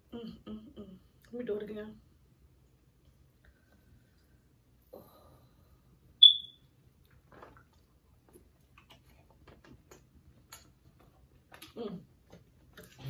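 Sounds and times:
high-pitched electronic beep: 6.2s - 6.6s.

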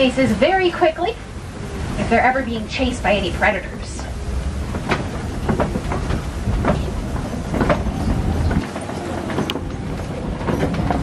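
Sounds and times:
truck engine rumble: 0.0s - 11.0s
truck body rattling: 4.5s - 11.0s.

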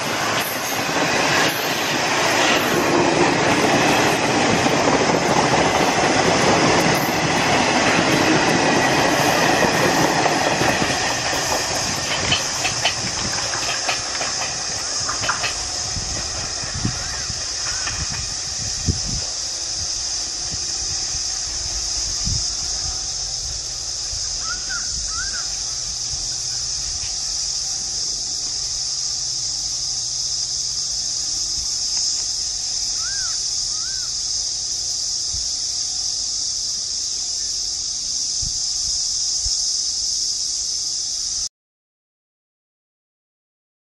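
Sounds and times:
passenger train rumble: 0.0s - 41.4s
high-pitched insect drone: 0.0s - 41.5s
bird calling: 24.4s - 25.7s, 33.0s - 34.2s.

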